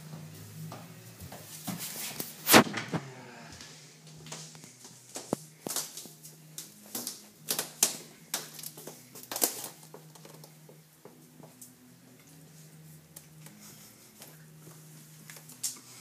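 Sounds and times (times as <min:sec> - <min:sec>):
hooves clicking and tapping: 0:04.1 - 0:12.3.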